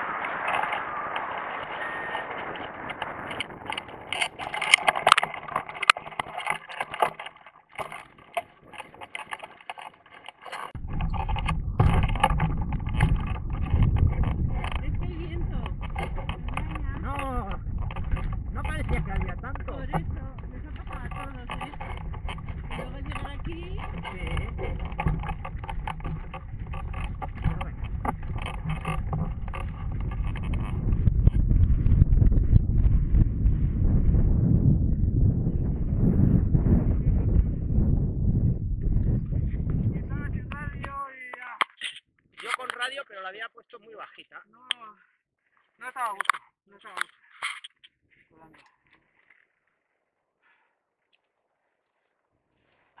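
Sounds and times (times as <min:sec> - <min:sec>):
rushing air: 0:00.0 - 0:05.9
wind buffeting on microphone: 0:00.0 - 0:41.2
rustles and taps: 0:02.6 - 0:32.6
frame knocking and scraping on grass: 0:03.0 - 0:32.0.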